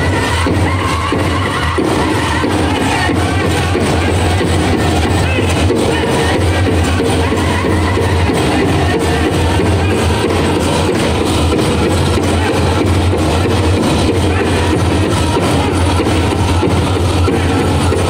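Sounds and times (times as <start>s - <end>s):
men singing: 0.0s - 11.1s
big drum steady beat: 0.0s - 18.0s.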